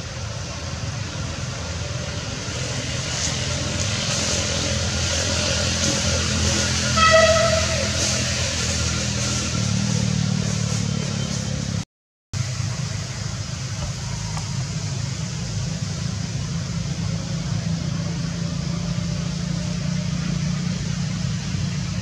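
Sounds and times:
low engine hum: 0:12.4 - 0:22.0.

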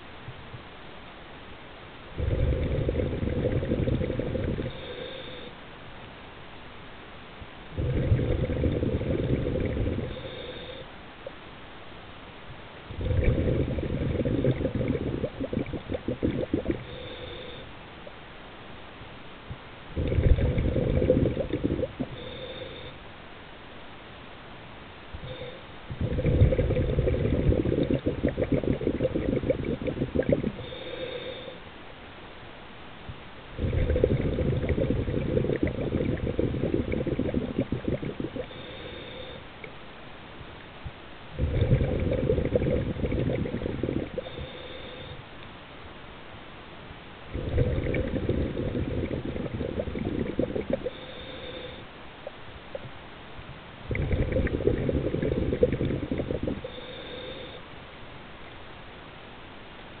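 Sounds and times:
faint hissing inhale: 0:02.1 - 0:06.0, 0:07.6 - 0:11.5, 0:12.4 - 0:18.2, 0:19.5 - 0:23.3, 0:25.1 - 0:31.9, 0:33.1 - 0:45.7, 0:47.2 - 0:58.0
underwater bubbles from regulator: 0:02.2 - 0:04.8, 0:07.8 - 0:10.2, 0:12.9 - 0:16.9, 0:20.0 - 0:22.1, 0:26.0 - 0:30.6, 0:33.6 - 0:38.5, 0:41.4 - 0:44.4, 0:47.3 - 0:50.9, 0:53.9 - 0:56.6.

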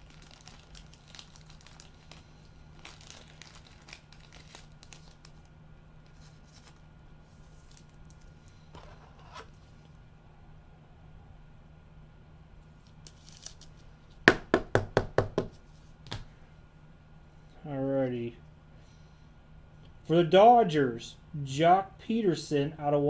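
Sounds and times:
cards and packaging rustling: 0:00.0 - 0:09.1, 0:12.8 - 0:13.8
steady low hum: 0:00.0 - 0:23.0.

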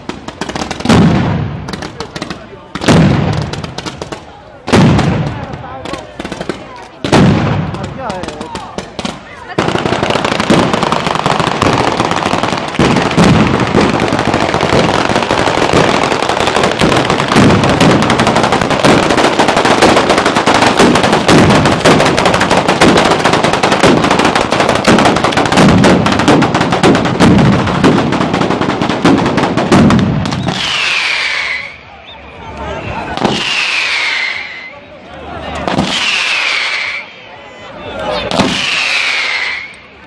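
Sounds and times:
firecrackers crackling and banging: 0:00.0 - 0:31.9, 0:32.5 - 0:37.2, 0:38.0 - 0:40.0
falling firework whistle: 0:30.2 - 0:32.3, 0:33.0 - 0:34.8, 0:35.8 - 0:37.2, 0:38.3 - 0:39.9.

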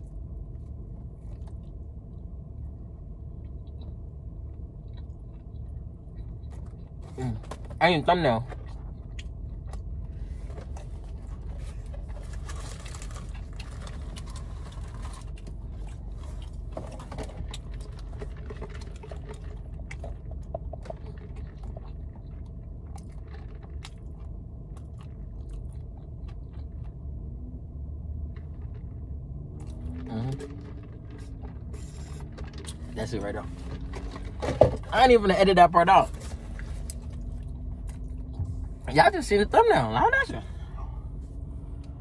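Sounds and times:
steady low hum: 0:00.0 - 0:42.0
paper packaging crinkling: 0:11.4 - 0:15.6
small clicks and crackles: 0:11.5 - 0:27.0.

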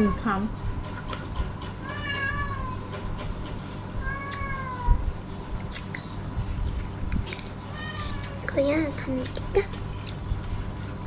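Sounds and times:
cat meowing: 0:01.8 - 0:02.9, 0:04.0 - 0:05.0, 0:07.7 - 0:08.4.

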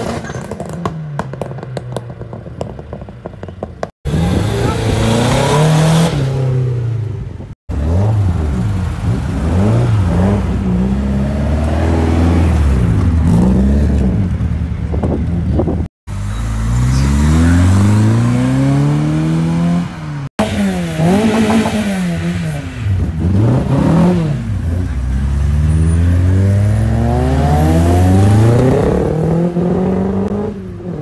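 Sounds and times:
car engines revving: 0:00.0 - 0:31.0.

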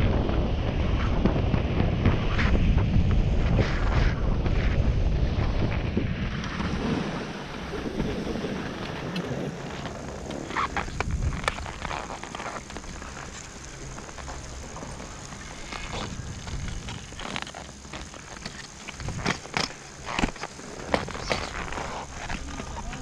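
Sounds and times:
skis hissing over snow: 0:00.0 - 0:23.0
wind buffeting microphone: 0:00.0 - 0:23.0.

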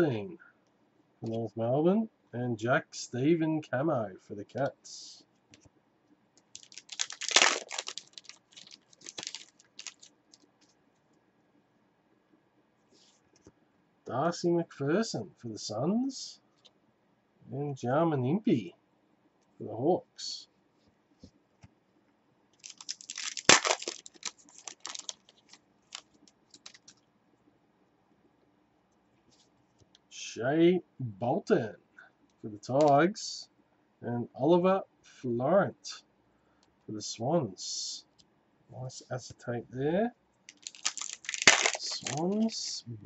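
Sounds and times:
cards clicking and rustling: 0:06.4 - 0:10.7, 0:22.6 - 0:27.0, 0:40.5 - 0:42.7
card pack wrapper crinkling: 0:06.6 - 0:10.5, 0:22.6 - 0:27.0, 0:40.5 - 0:42.7.

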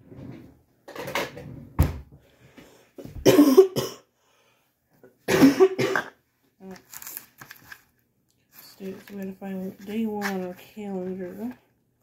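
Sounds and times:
person coughing: 0:03.2 - 0:04.1, 0:05.3 - 0:06.2.

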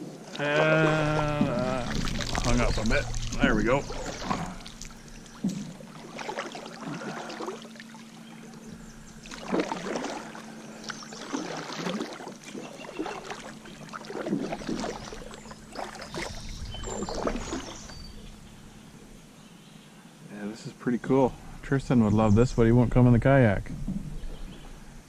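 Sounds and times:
kayak paddle splashing: 0:00.1 - 0:19.3.

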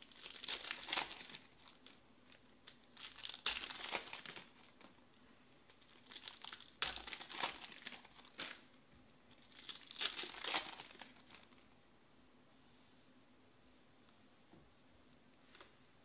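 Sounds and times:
foil wrappers crinkling and tearing: 0:00.0 - 0:05.0, 0:05.7 - 0:08.7, 0:09.4 - 0:11.6.

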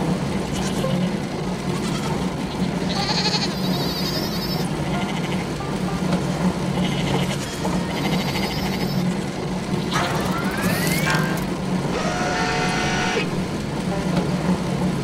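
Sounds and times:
low machine hum: 0:00.0 - 0:15.0
sheep bleating: 0:02.9 - 0:04.3, 0:04.9 - 0:05.5, 0:06.8 - 0:09.0.

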